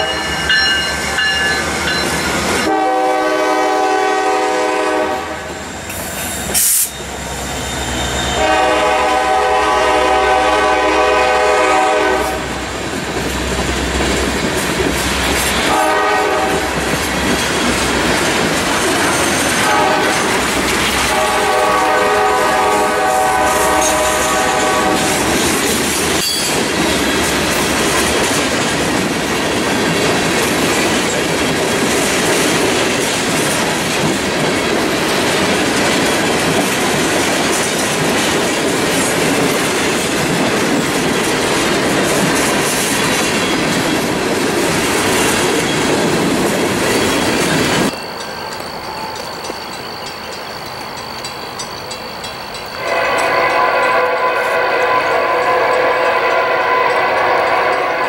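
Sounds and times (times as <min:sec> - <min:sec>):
train air horn blasts: 0:00.0 - 0:00.7, 0:02.6 - 0:05.6, 0:07.9 - 0:12.6, 0:15.6 - 0:16.8, 0:19.6 - 0:25.4, 0:52.8 - 0:58.0
train wheels clattering: 0:05.8 - 0:58.0.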